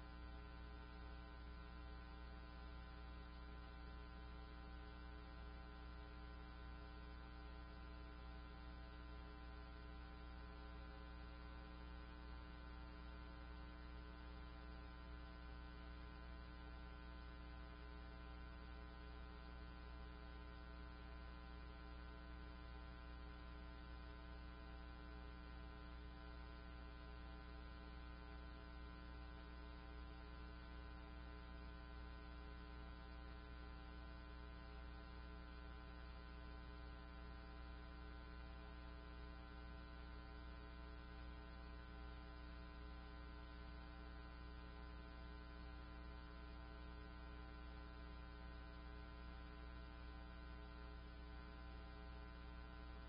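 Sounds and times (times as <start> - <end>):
faint electrical hum: 0.0 - 53.0.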